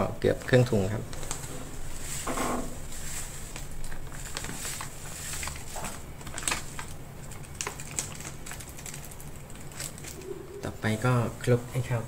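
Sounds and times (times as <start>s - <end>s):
plastic bag crinkling: 1.1s - 10.6s.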